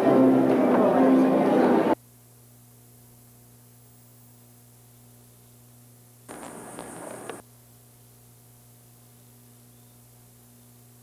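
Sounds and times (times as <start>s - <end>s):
tape playback hum and hiss: 0.0s - 11.0s
noisy static burst: 6.3s - 7.4s.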